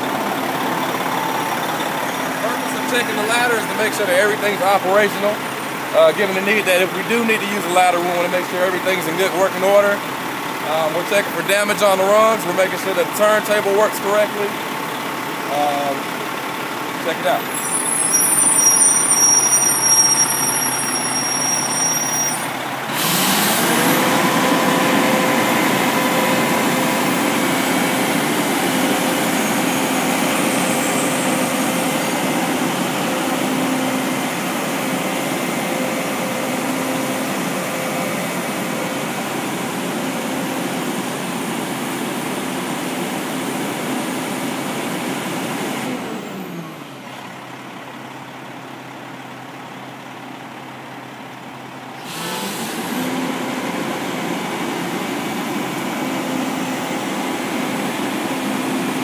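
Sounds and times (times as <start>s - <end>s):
fire truck engine revving: 0.0s - 59.0s
thin high whine: 17.4s - 22.6s.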